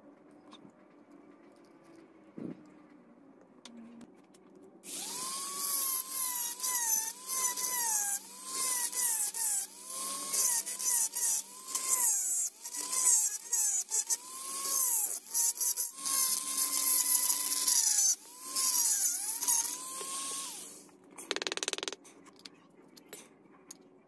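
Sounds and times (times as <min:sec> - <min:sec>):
hiss of cutting wood: 0:04.9 - 0:13.9
rotary tool whining: 0:04.9 - 0:21.9.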